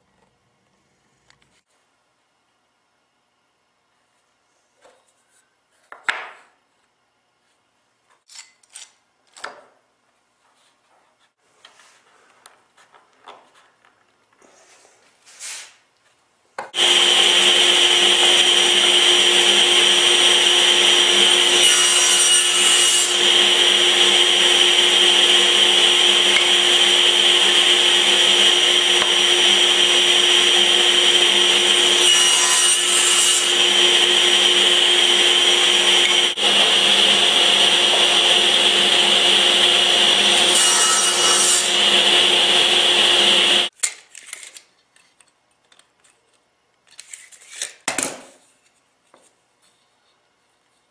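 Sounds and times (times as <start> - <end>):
power tool cutting wood: 16.8 - 43.7.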